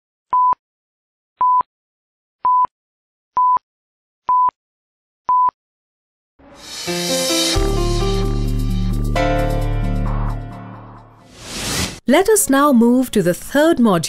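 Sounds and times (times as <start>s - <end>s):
music: 6.4s - 12.0s.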